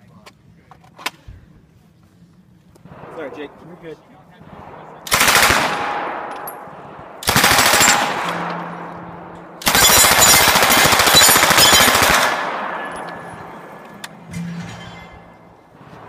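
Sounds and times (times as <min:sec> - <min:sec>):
rifle firing automatic bursts: 0:05.1 - 0:06.3, 0:07.2 - 0:08.4, 0:09.6 - 0:12.9.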